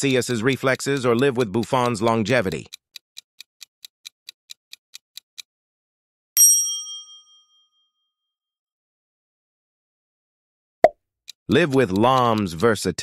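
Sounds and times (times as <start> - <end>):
clock ticking quickly: 0.0 - 5.5, 11.3 - 13.0
bright bell ding: 6.4 - 7.8.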